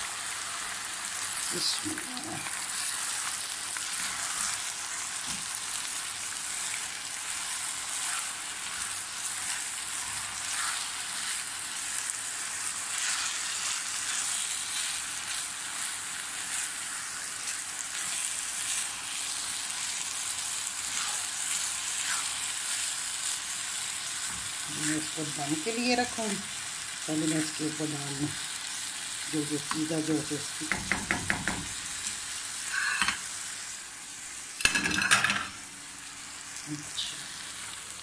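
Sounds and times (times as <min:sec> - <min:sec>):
syrup sizzling in a pan: 0:00.0 - 0:34.8, 0:35.5 - 0:38.0
spatula strokes: 0:07.8 - 0:11.5, 0:20.8 - 0:22.4.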